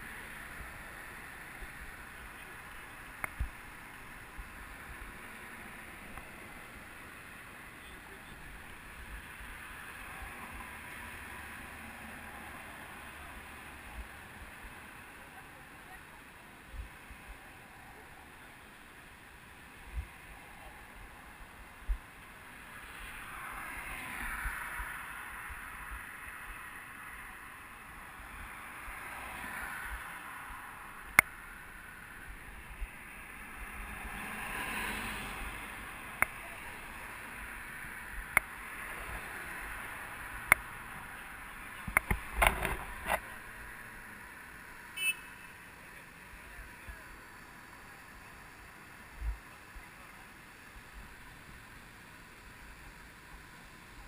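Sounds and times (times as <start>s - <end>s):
cars driving by: 0.0s - 54.0s
sharp clicks and knocks: 41.8s - 43.2s.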